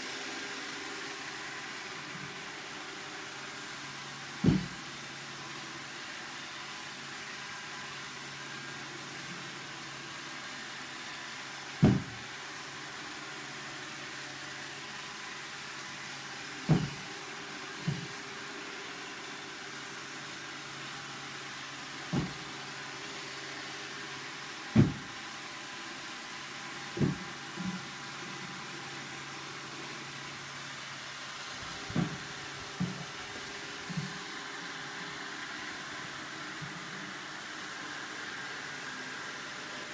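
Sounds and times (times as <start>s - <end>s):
dull thumps: 4.4s - 4.8s, 11.8s - 12.2s, 16.7s - 17.1s, 17.8s - 18.1s, 22.1s - 22.4s, 24.8s - 25.2s, 27.0s - 27.8s, 31.9s - 33.1s
low thumps: 24.8s - 25.1s.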